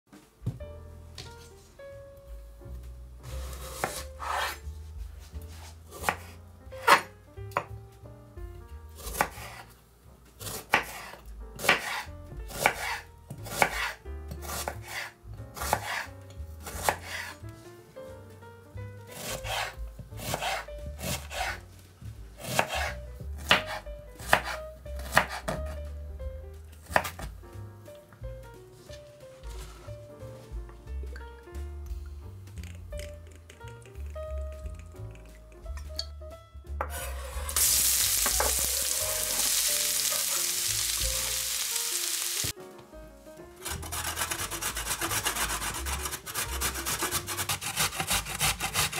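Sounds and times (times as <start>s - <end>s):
knife chopping onion on wood: 3.5s - 4.6s, 5.9s - 7.8s, 9.0s - 9.7s, 10.4s - 17.4s, 19.1s - 21.7s, 22.4s - 25.8s, 26.8s - 27.4s, 43.6s - 48.9s.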